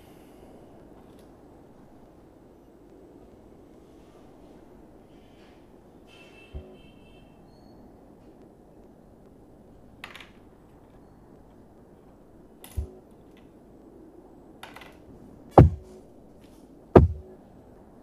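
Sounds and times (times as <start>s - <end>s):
low steady background hiss: 0.0s - 18.0s
knocks dropping in pitch: 15.6s - 15.9s, 17.0s - 17.2s.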